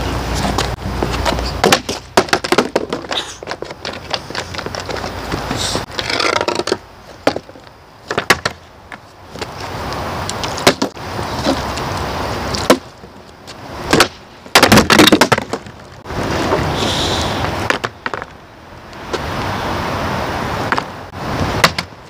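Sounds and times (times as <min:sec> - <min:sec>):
skateboard clattering on asphalt: 0:00.4 - 0:09.7, 0:10.3 - 0:11.6, 0:12.6 - 0:16.6, 0:17.6 - 0:18.4
plastic bottle clattering: 0:01.6 - 0:07.5, 0:14.0 - 0:15.7.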